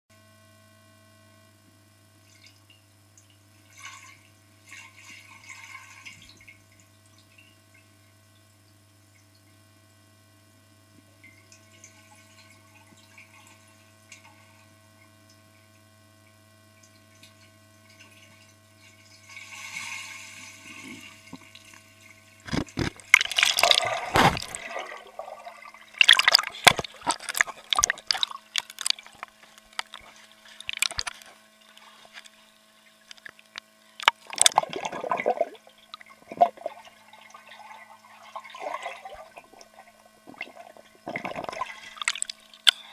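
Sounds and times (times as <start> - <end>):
faint steady underwater hum: 0.1 - 42.9
water splashing and churning: 19.2 - 32.3, 34.0 - 42.8.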